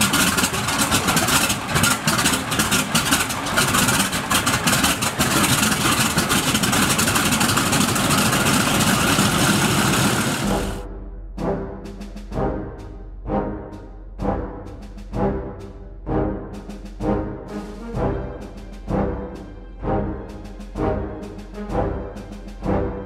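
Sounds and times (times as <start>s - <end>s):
radial aircraft engine running: 0.0s - 23.0s
orchestral timpani hit: 10.0s - 23.0s.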